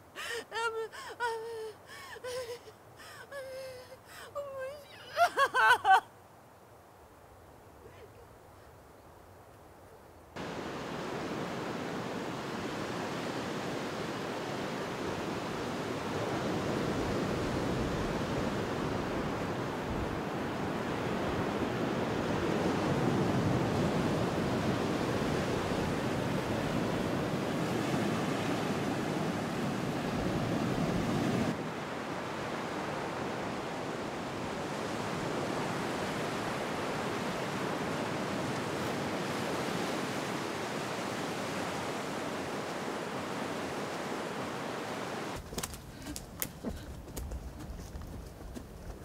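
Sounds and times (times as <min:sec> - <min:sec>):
wind: 0:00.0 - 0:49.0
surf breaking on a beach: 0:10.4 - 0:45.4.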